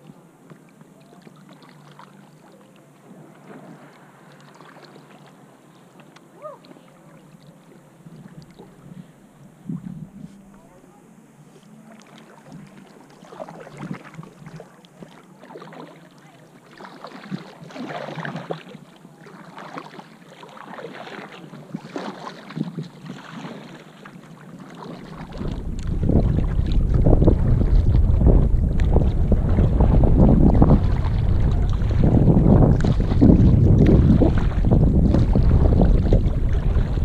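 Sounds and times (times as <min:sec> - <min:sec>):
water splashing against kayak: 0:00.0 - 0:37.0
wind buffeting microphone: 0:25.2 - 0:37.0.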